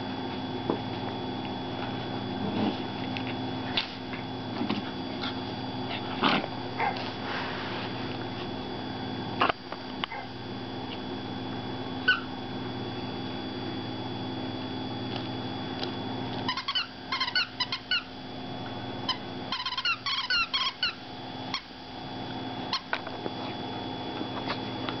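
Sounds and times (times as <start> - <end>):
steady hum: 0.0 - 25.0
puppies squeaking and yipping: 12.1 - 12.3, 16.5 - 18.1, 19.6 - 21.0.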